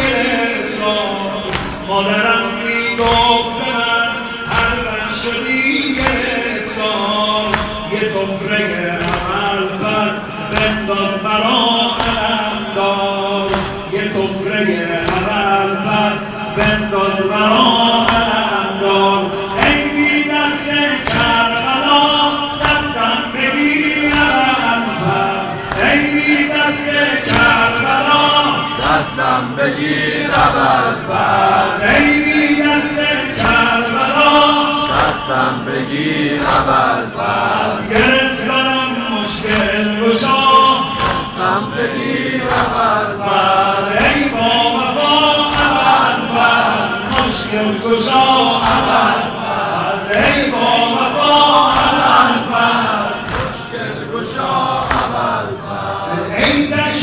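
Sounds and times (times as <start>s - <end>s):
men chanting together: 0.0s - 57.0s
hands slapping on chests: 1.4s - 1.9s, 7.4s - 8.0s, 9.0s - 9.5s, 10.5s - 10.9s, 11.9s - 12.4s, 13.4s - 14.1s, 15.0s - 15.4s, 21.0s - 21.5s, 24.0s - 24.6s, 25.6s - 26.3s, 36.4s - 36.8s, 39.4s - 39.8s, 41.0s - 41.4s, 42.4s - 42.8s, 45.4s - 46.2s, 48.6s - 49.3s, 51.6s - 53.7s, 54.8s - 55.3s.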